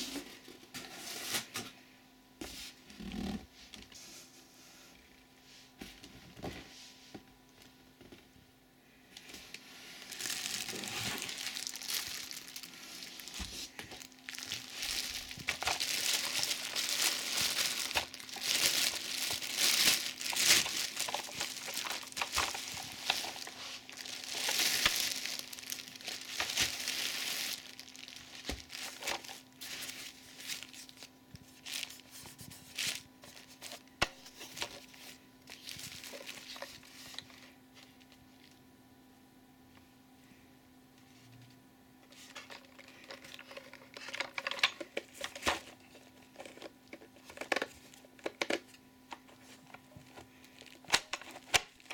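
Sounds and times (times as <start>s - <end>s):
plastic packaging crinkling: 9.2s - 38.6s, 42.1s - 51.9s.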